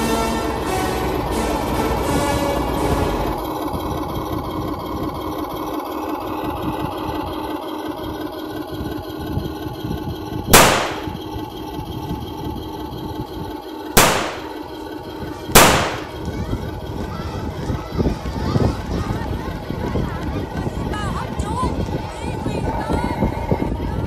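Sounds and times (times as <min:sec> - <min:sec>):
engine-like hum: 0:00.0 - 0:24.0
loud gunshot-like bangs: 0:10.6 - 0:11.1, 0:14.0 - 0:14.5, 0:15.6 - 0:16.2.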